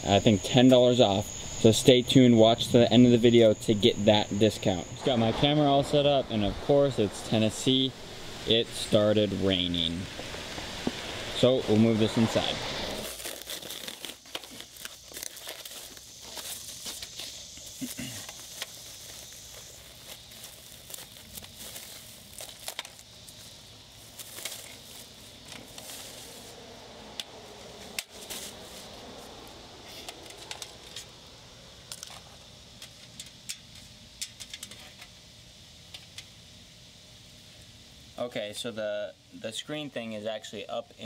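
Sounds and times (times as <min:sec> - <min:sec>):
plastic and bubble wrap crinkling: 0:12.2 - 0:26.8, 0:27.8 - 0:29.4
small crackles and taps: 0:14.2 - 0:23.4, 0:30.0 - 0:31.1, 0:31.9 - 0:35.2.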